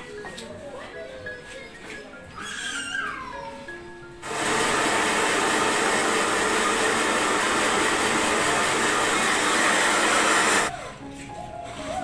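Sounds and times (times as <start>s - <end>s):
hair dryer blowing: 4.2s - 10.7s.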